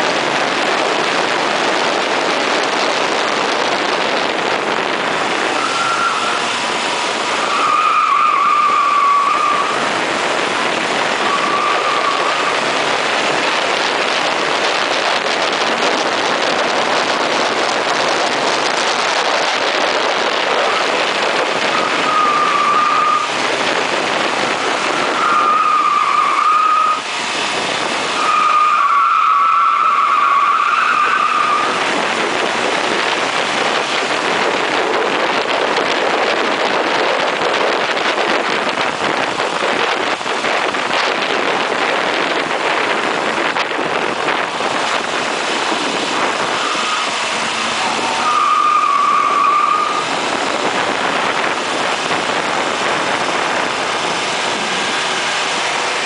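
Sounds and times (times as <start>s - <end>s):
car engine and road noise: 0.0s - 56.0s
tyres squealing: 45.8s - 50.2s.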